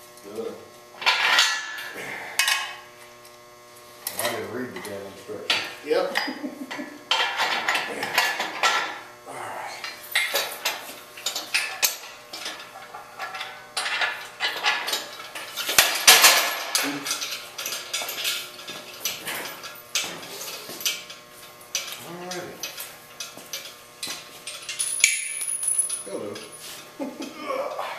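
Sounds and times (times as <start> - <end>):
metal parts clanking: 10.2 - 18.4, 24.5 - 26.6.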